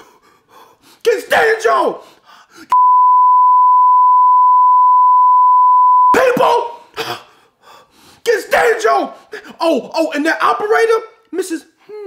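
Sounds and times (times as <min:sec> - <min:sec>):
man shouting angrily: 0:01.0 - 0:02.0, 0:06.2 - 0:06.8, 0:08.2 - 0:11.6
censor bleep tone: 0:02.8 - 0:06.2.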